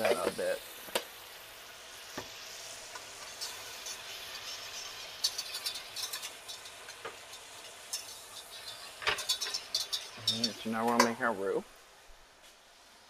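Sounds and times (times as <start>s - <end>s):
butter sizzling in a saucepan: 0.0s - 13.0s
whisk clinking and scraping pan: 3.2s - 11.3s.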